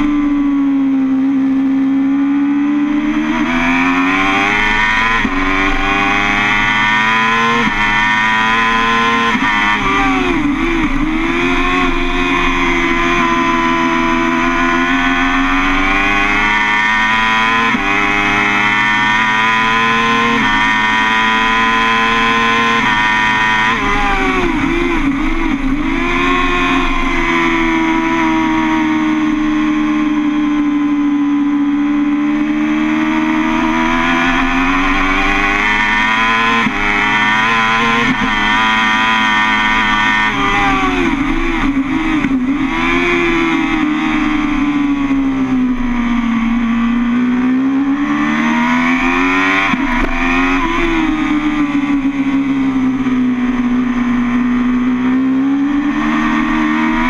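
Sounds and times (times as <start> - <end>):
motorcycle engine revving hard: 0.0 - 57.0.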